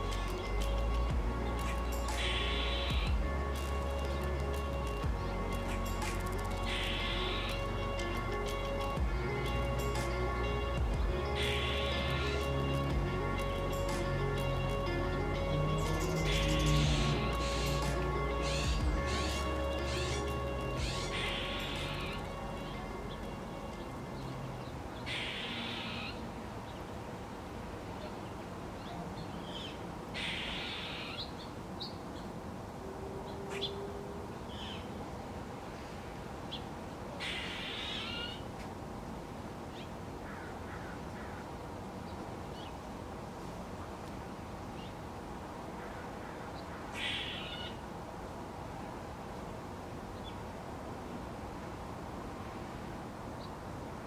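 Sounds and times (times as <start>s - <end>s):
small birds chirping: 0.0s - 26.9s
outdoor background hiss: 0.0s - 54.0s
crows cawing: 20.8s - 22.2s, 25.1s - 26.2s, 30.2s - 31.2s, 37.2s - 38.4s, 40.2s - 41.5s, 45.8s - 47.8s.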